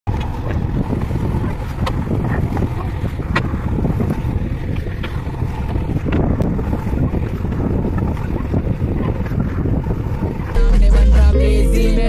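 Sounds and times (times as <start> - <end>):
wind on microphone: 0.1 - 11.4
diesel engine running: 10.5 - 12.0.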